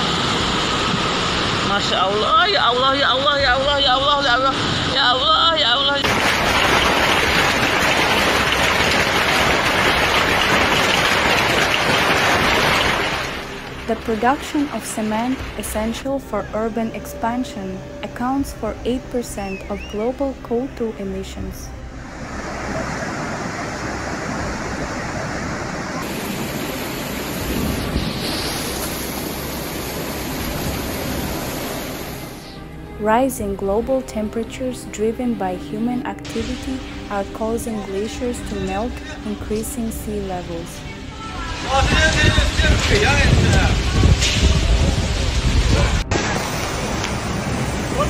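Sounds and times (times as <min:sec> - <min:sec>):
floodwater rushing: 0:00.0 - 0:16.7, 0:21.8 - 0:32.9, 0:36.3 - 0:48.0
hail on water and grass: 0:06.0 - 0:16.0, 0:41.6 - 0:48.0.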